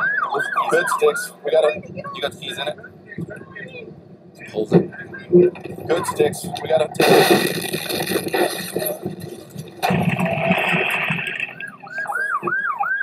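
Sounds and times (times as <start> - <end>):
police siren yelping: 0.0 - 3.9, 8.0 - 13.0
rough rushing and scraping: 1.7 - 12.1.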